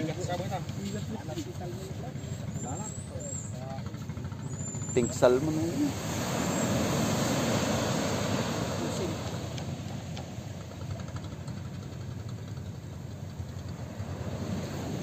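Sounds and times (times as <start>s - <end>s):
wave breaking on shore: 5.0s - 10.8s, 13.8s - 15.0s
wash rushing up sand: 5.1s - 10.6s, 13.8s - 15.0s.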